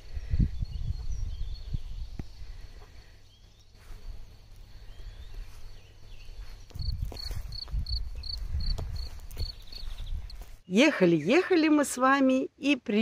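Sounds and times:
bird chirps: 9.4s - 10.4s.

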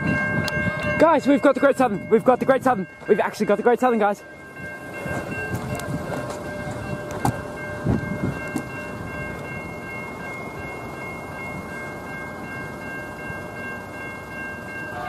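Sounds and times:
wind noise: 0.0s - 3.0s, 4.6s - 10.6s
level crossing bells ringing: 0.0s - 15.0s.

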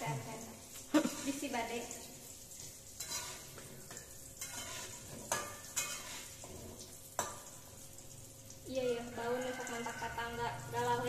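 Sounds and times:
food sizzling in hot oil: 0.0s - 11.0s
metal spatula scraping a wok: 1.0s - 1.5s, 2.6s - 7.5s.

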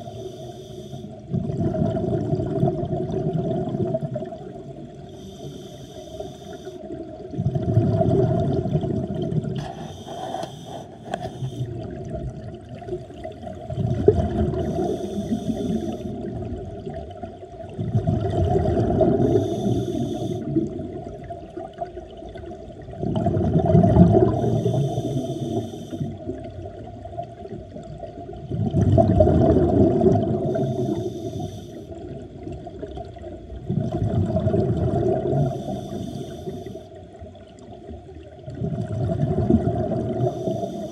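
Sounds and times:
underwater exhalation bubbles: 1.3s - 4.8s, 7.2s - 17.0s, 17.7s - 19.5s, 20.4s - 25.2s, 27.8s - 30.9s, 32.0s - 35.7s, 38.4s - 40.6s
steady hum: 14.4s - 16.3s.

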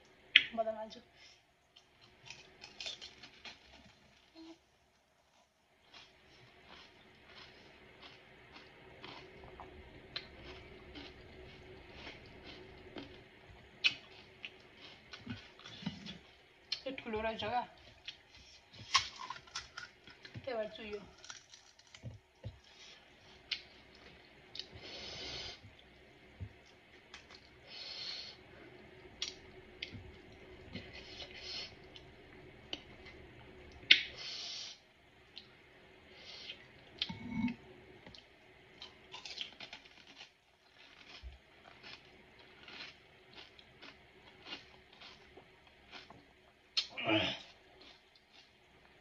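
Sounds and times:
crisp shells crunching: 2.0s - 4.3s, 18.8s - 20.3s, 21.1s - 22.1s, 39.1s - 45.3s
crisp shell crackling: 2.0s - 4.5s, 21.0s - 22.4s.

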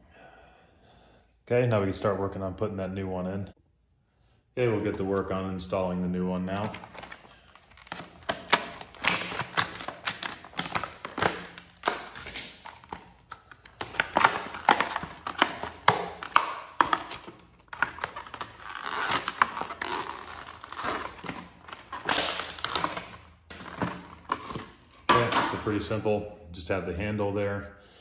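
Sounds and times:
stiff plastic crackling: 6.4s - 25.9s
scissors cutting plastic: 6.9s - 25.3s.

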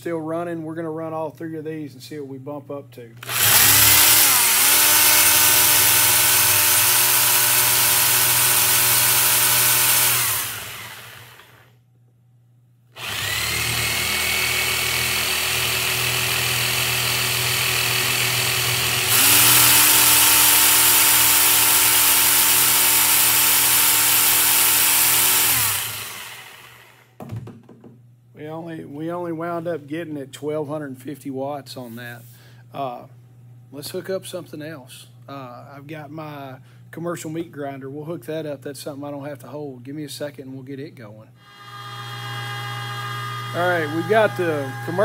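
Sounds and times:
power saw motor whine: 3.2s - 11.7s, 13.0s - 27.2s, 41.4s - 45.0s.

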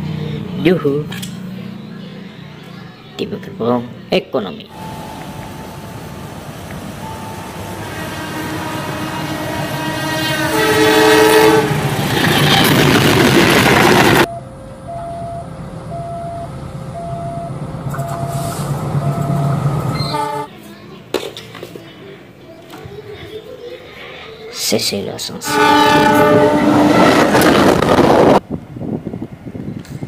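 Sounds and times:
locomotive engine running: 4.7s - 20.5s
locomotive horn: 7.6s - 12.9s, 20.0s - 20.5s, 25.4s - 27.8s
level-crossing two-tone alarm: 14.2s - 20.2s.

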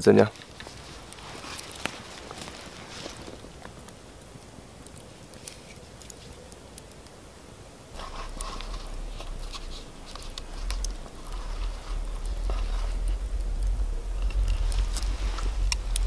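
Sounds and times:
campfire crackling and popping: 0.0s - 16.0s
rustling and clicking: 0.2s - 4.0s, 4.8s - 7.2s, 8.0s - 16.0s
low rumble: 8.0s - 16.0s.

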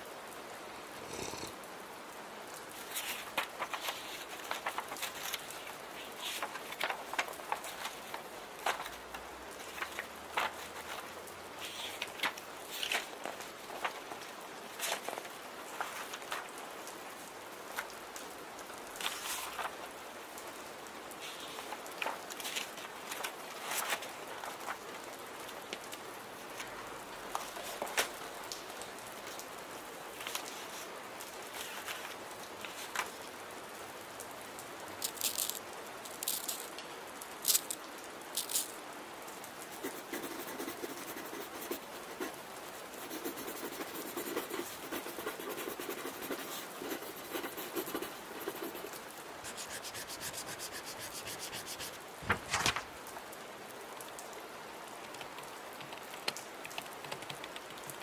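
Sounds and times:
rain hiss: 0.0s - 58.0s
pen scratching on paper: 39.7s - 42.3s, 43.0s - 52.0s.

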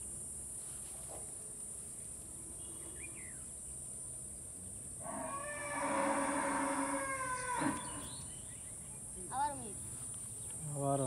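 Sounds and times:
crickets chirping: 0.0s - 11.0s
bird chirp: 2.3s - 3.6s, 7.3s - 9.2s
pitched animal call: 5.1s - 8.1s.

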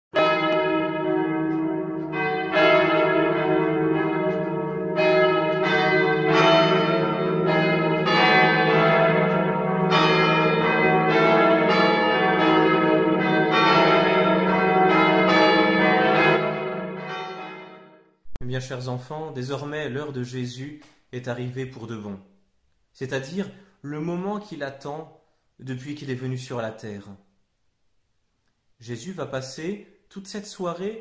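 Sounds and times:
church bells pealing: 0.2s - 17.9s.

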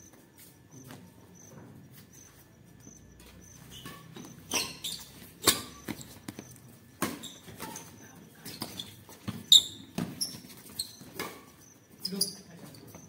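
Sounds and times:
shoe squeaks on court: 0.7s - 13.0s
rackets hitting shuttlecock: 5.4s - 6.4s, 7.0s - 7.9s.

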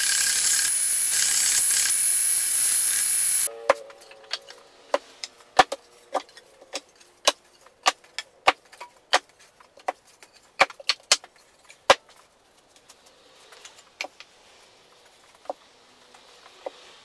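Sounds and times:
belt sander running: 0.0s - 3.5s.

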